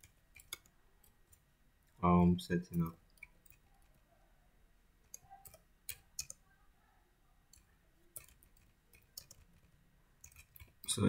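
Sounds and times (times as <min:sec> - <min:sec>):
faint keyboard keystrokes: 0:00.0 - 0:02.0, 0:05.0 - 0:06.4, 0:07.5 - 0:11.0.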